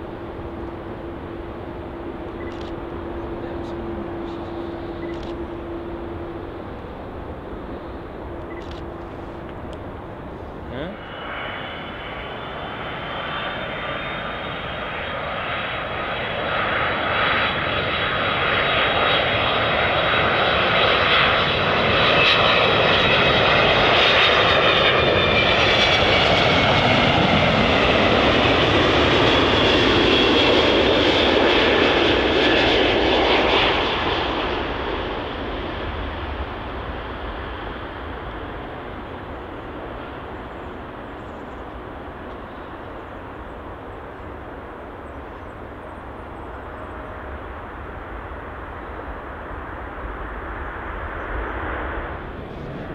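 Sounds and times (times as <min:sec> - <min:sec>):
jet airliner passing close by: 0:00.0 - 0:52.9.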